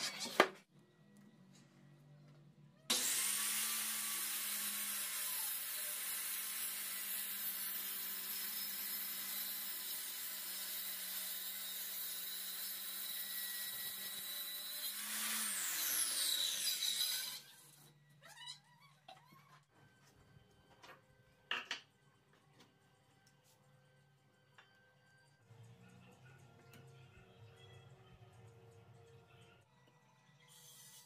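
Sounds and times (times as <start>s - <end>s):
saw blade cutting plywood: 2.9s - 17.6s.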